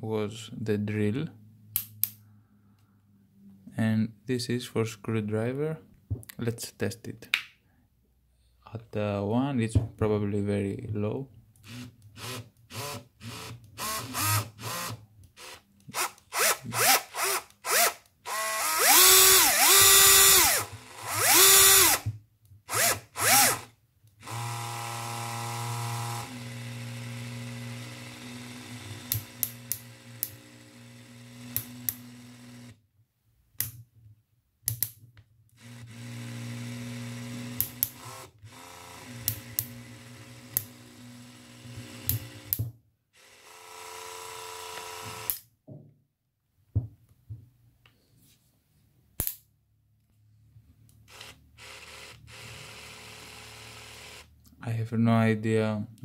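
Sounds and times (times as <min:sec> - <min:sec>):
cordless drill motor running: 0:11.6 - 0:22.1, 0:22.7 - 0:32.8, 0:35.6 - 0:42.6, 0:43.2 - 0:45.4, 0:51.1 - 0:54.4
sharp clicks: 0:34.7 - 0:35.0.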